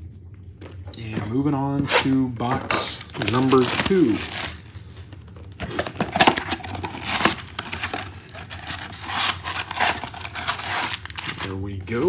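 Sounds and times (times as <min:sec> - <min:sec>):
cardboard rustling: 0:00.7 - 0:12.0
plastic wrapping crinkling: 0:02.9 - 0:12.0.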